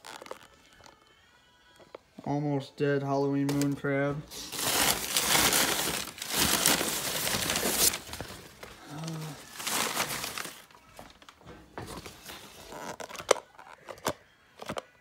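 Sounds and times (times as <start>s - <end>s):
newspaper rustling and crumpling: 3.5s - 11.3s.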